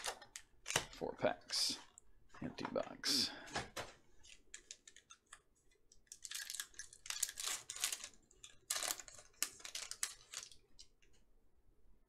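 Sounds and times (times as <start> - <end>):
foil wrapper crinkling and tearing: 6.0 - 10.9.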